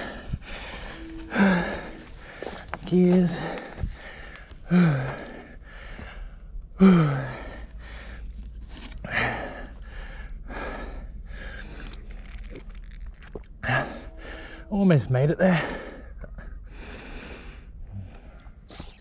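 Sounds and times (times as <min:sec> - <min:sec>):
person breathing hard: 0:00.0 - 0:12.1, 0:15.5 - 0:18.6.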